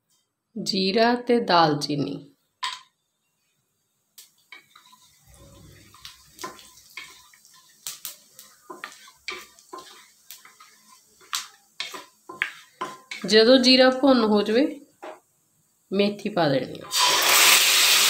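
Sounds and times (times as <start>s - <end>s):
spatula knocking and scraping metal pan: 4.5s - 13.8s.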